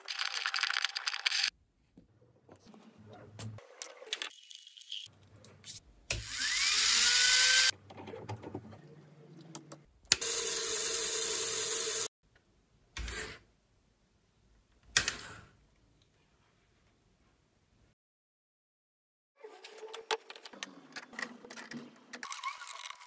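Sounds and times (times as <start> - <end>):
small electric motor whining: 6.2 - 7.7, 10.2 - 12.1.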